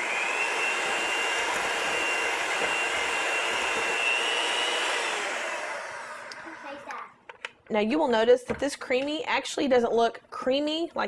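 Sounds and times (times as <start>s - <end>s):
electric mixer whining: 0.0s - 7.0s.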